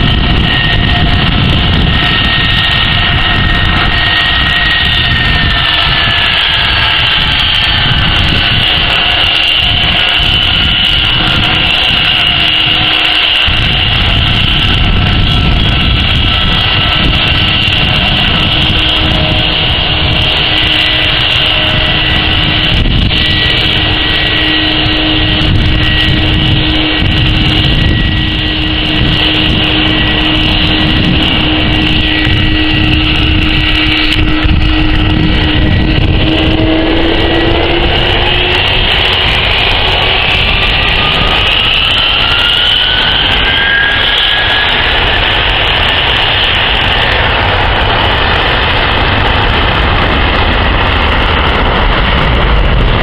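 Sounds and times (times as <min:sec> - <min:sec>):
jet engines whining: 0:00.0 - 0:53.0.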